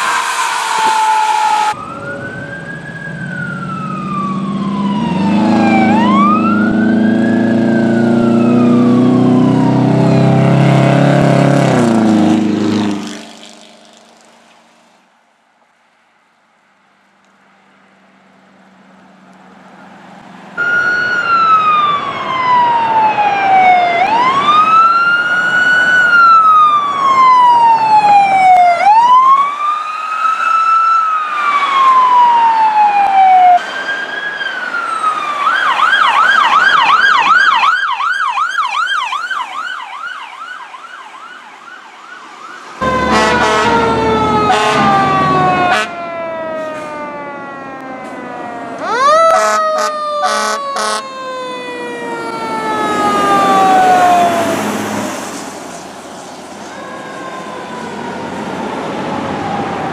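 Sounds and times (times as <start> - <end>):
fire engine rumble: 0.0 - 10.9, 42.8 - 59.9
electronic sirens wailing and yelping: 0.0 - 12.0, 20.6 - 55.2, 56.6 - 59.9.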